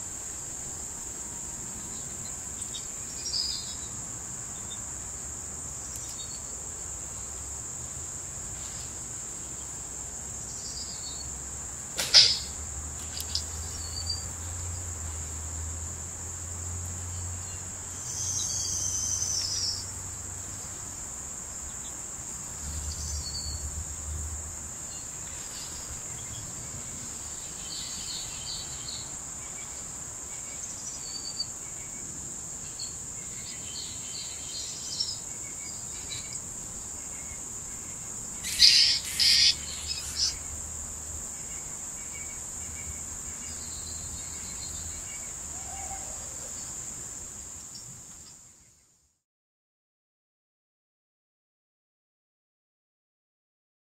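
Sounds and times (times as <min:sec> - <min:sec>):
high-pitched insect chorus: 0:00.0 - 0:49.0
small bird chirps: 0:01.8 - 0:03.9, 0:12.0 - 0:14.4, 0:17.4 - 0:19.9, 0:38.4 - 0:40.5
quick run of bird calls: 0:38.4 - 0:40.4.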